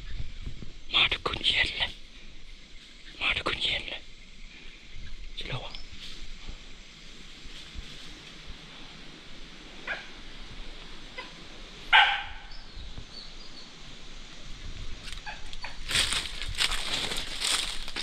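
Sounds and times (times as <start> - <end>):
dog barking: 9.8 - 10.2, 11.2 - 12.5
crunching dry leaves and brush: 14.9 - 18.0.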